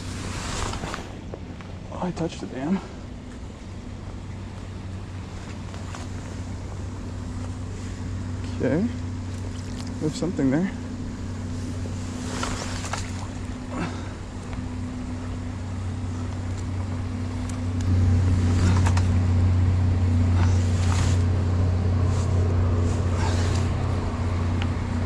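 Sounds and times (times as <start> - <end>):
steady low drone: 0.0 - 25.0
rake splashing in water: 9.3 - 10.0, 12.0 - 14.0.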